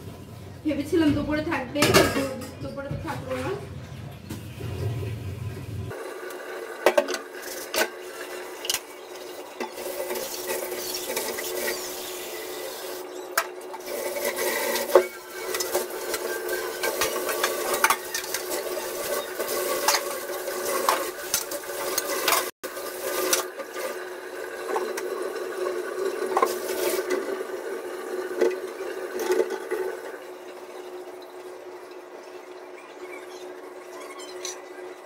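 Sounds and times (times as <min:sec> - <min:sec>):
metal utensils clinking: 0:13.8 - 0:23.9.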